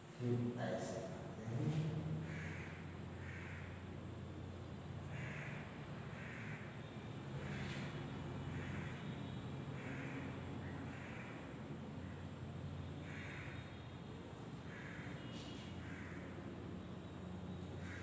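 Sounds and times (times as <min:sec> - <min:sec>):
steady low hum: 0:00.0 - 0:18.0
crow cawing: 0:02.2 - 0:04.0, 0:05.0 - 0:12.2, 0:13.0 - 0:13.8, 0:14.6 - 0:16.6, 0:17.7 - 0:18.0.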